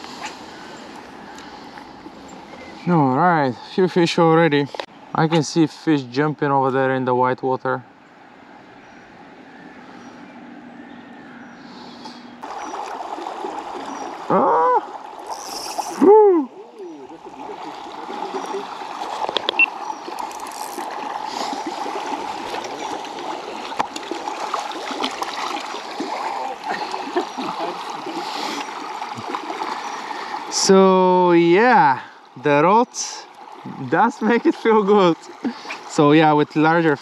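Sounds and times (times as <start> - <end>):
river running over stones: 12.4 - 37.0
person exclaiming: 14.3 - 14.9, 15.5 - 17.3.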